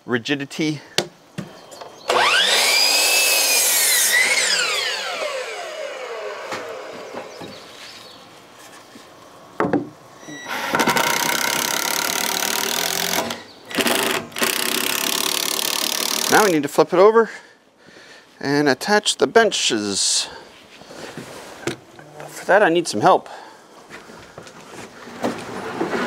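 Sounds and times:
cordless drill driving screw: 2.1s - 7.1s, 10.5s - 16.5s
miter saw cutting wood: 2.1s - 7.4s, 10.5s - 16.6s.

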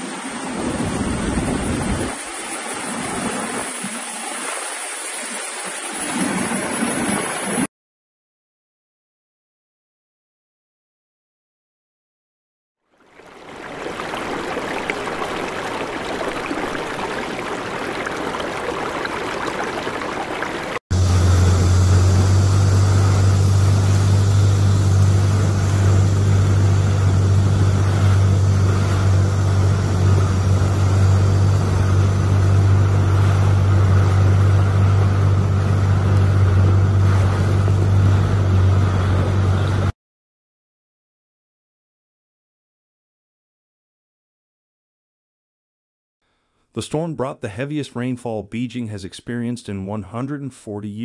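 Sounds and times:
floodwater rushing: 0.0s - 7.7s, 12.9s - 39.9s
steady low hum: 20.9s - 39.9s.

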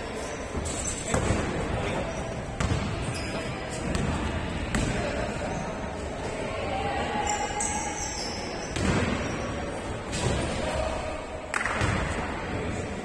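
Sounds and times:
background noise: 0.0s - 13.0s
basketball bouncing on court: 2.6s - 5.0s.

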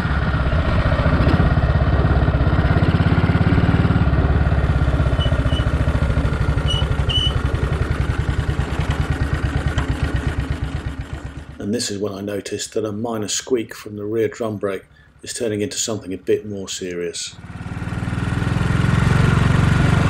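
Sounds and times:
four-stroke motorcycle engine: 0.0s - 12.0s, 17.3s - 20.0s
drum brake squeaking: 5.1s - 5.8s, 6.6s - 7.5s.

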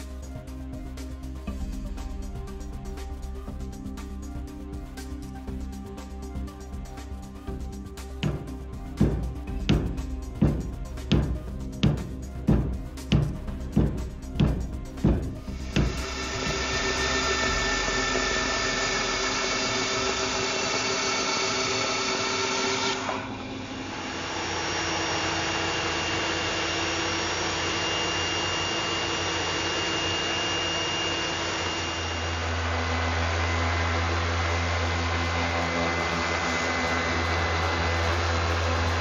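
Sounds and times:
orbit sander humming: 0.2s - 39.0s
belt sander running: 7.7s - 39.0s
band saw cutting wood: 15.0s - 39.0s.

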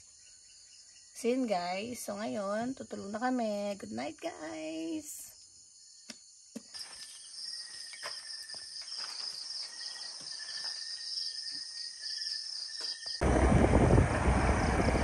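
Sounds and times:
crickets chirping: 0.0s - 15.0s
vehicle road and wind noise: 13.2s - 15.0s.

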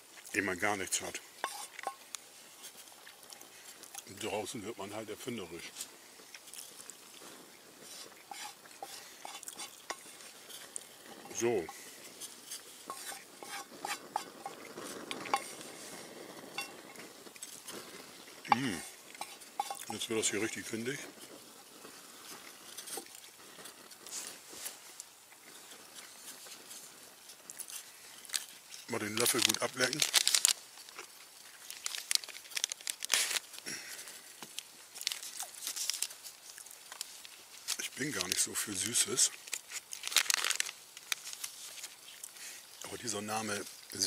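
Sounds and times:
wooden spoon scraping frying pan: 1.0s - 4.1s, 7.8s - 24.8s
packaging crinkling and rustling: 25.8s - 44.0s
packaging tearing: 29.1s - 33.7s, 35.0s - 36.2s, 39.3s - 42.3s.

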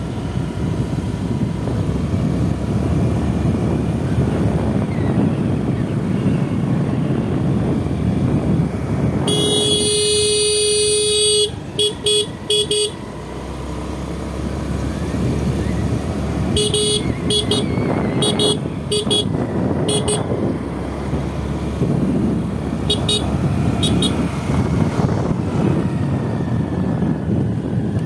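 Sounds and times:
motorcycle engine running: 0.0s - 28.0s
vehicle horn honking: 9.2s - 13.0s, 16.5s - 20.4s, 22.9s - 24.3s.

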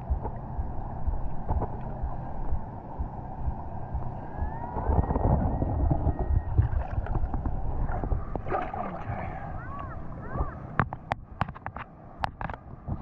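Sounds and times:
low rumble: 0.0s - 11.4s
muffled churning water: 0.0s - 13.0s.

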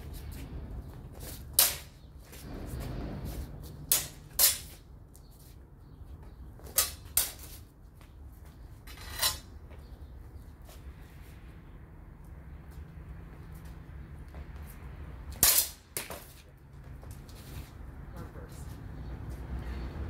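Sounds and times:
swords clashing: 1.5s - 2.0s, 3.8s - 4.8s, 6.7s - 7.5s, 15.3s - 16.2s.

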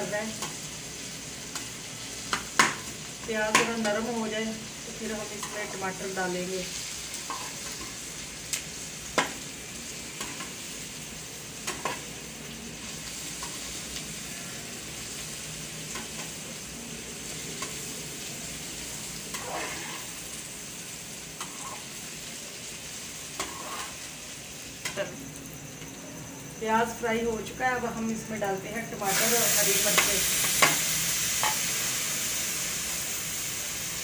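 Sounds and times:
onions sizzling in pan: 0.0s - 34.0s
metal spoon scraping pan: 19.3s - 20.2s, 21.4s - 21.9s, 23.4s - 24.0s.

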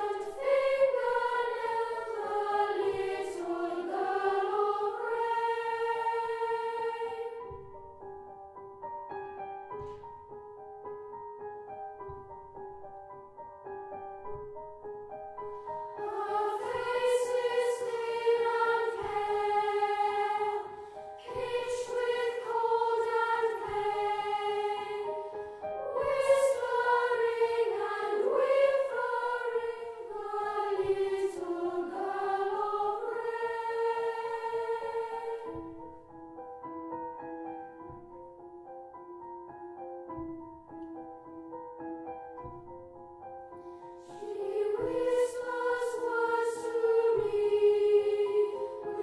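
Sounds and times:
boys' choir singing: 0.0s - 7.5s, 15.9s - 35.8s, 44.1s - 49.0s
grand piano accompaniment: 0.0s - 49.0s.

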